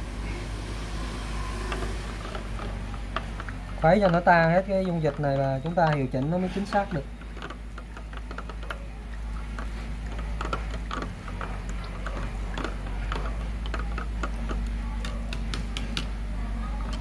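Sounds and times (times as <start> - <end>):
stick stirring water in plastic bottle: 1.6 - 17.0
stick knocking against plastic: 2.3 - 16.2.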